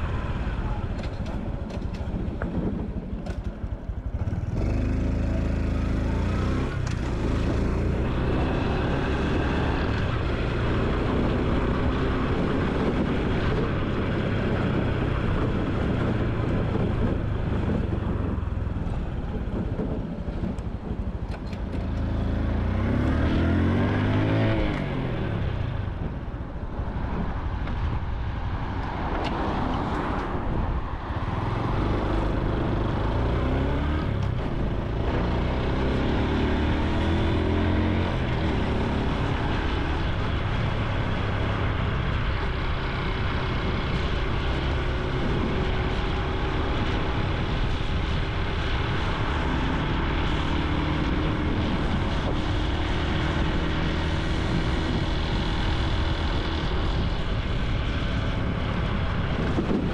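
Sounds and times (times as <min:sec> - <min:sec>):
wind noise: 0:00.0 - 0:59.9
motorcycle engine running: 0:00.4 - 0:23.1.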